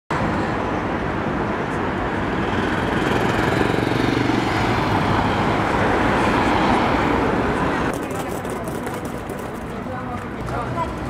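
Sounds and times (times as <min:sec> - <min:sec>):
cars passing: 0:00.1 - 0:11.0
motorcycle passing: 0:02.3 - 0:10.9.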